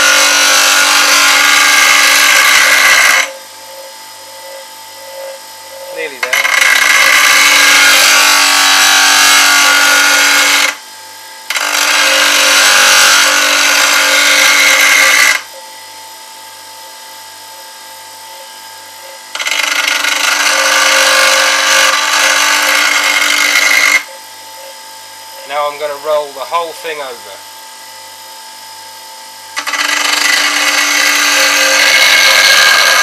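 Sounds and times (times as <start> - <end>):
bench grinder grinding steel: 0.0 - 10.8, 11.5 - 15.6, 18.6 - 24.2, 29.5 - 33.0
grinder motor humming: 0.0 - 10.9, 11.5 - 15.8, 18.3 - 27.5, 29.4 - 33.0.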